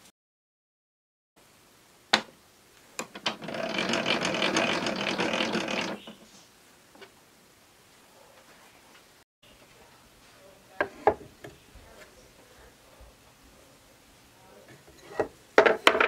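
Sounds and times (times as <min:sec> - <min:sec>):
rapid rattle of gear clicks: 0:03.2 - 0:06.0.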